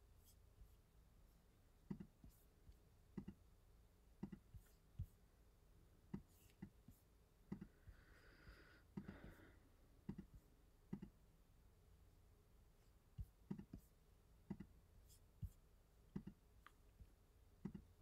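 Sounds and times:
computer mouse clicks: 3.2s - 3.4s, 7.5s - 7.7s, 10.0s - 11.2s, 16.1s - 16.8s, 17.6s - 17.9s.

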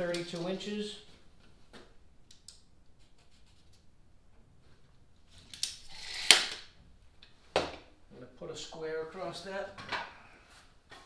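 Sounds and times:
tape measure retracting with snap: 5.5s - 6.7s.

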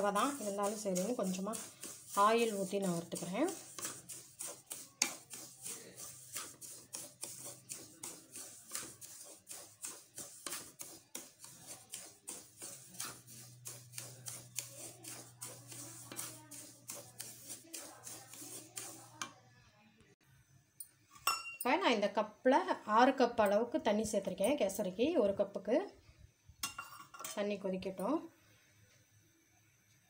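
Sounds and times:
wooden spatula scraping metal pan: 0.0s - 19.4s.

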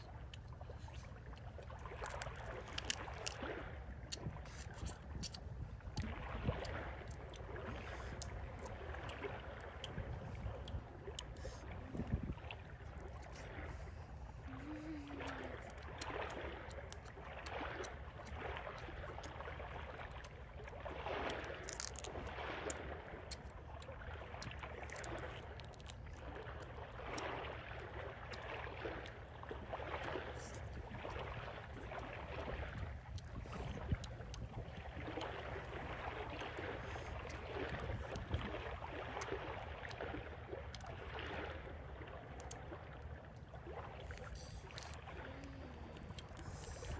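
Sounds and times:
person chewing and smacking: 4.1s - 5.4s
low outdoor rumble: 41.7s - 46.9s.

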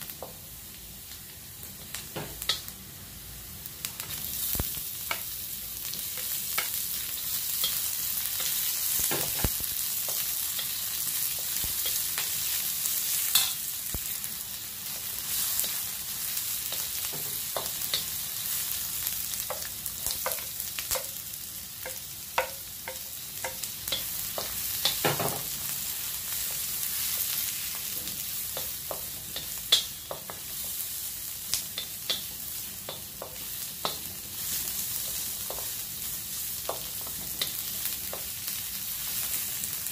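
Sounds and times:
food sizzling in hot oil: 0.0s - 39.9s.

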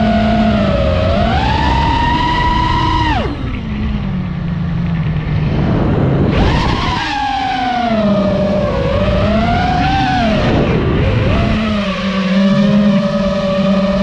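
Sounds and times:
drone motors whining: 0.0s - 14.0s
propeller wash rushing: 0.0s - 14.0s.

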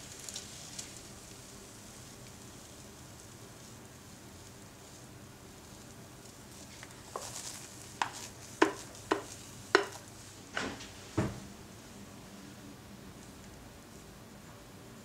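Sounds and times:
utensil scraping a mixing bowl: 6.6s - 10.1s.

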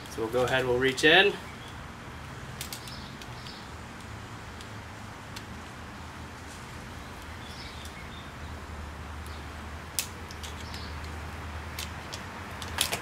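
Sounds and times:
sharp metallic clicks of pliers: 9.2s - 13.0s.

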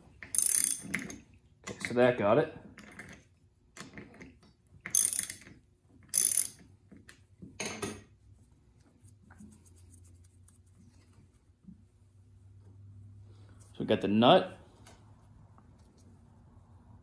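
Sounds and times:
socket ratchet clicking: 0.3s - 0.9s, 4.9s - 5.5s, 6.1s - 6.6s.

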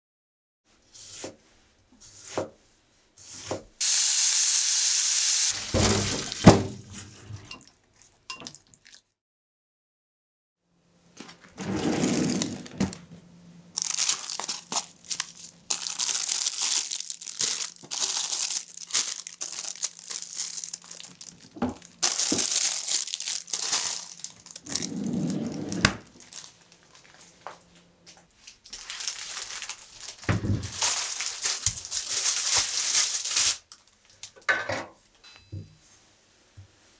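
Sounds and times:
plastic bags crinkling: 12.0s - 13.0s, 13.8s - 27.4s, 28.4s - 34.3s.

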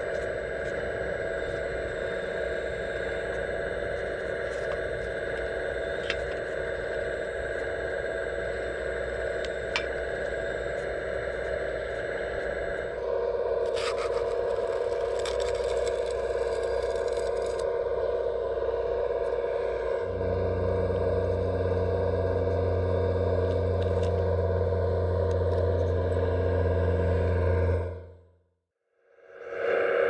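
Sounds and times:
hydraulic pump whine: 0.0s - 28.3s
scraping and crackling: 13.7s - 17.6s.

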